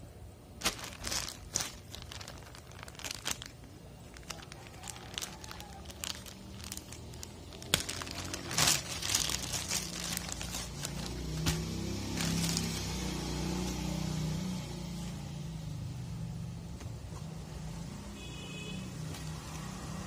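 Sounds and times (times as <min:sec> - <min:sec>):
plastic bag crinkling: 0:00.5 - 0:13.2.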